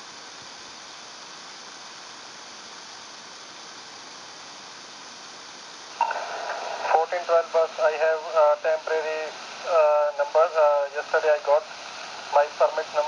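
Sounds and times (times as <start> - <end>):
radio scanner hiss: 0.0 - 13.0
radio transmission burst: 5.9 - 13.0.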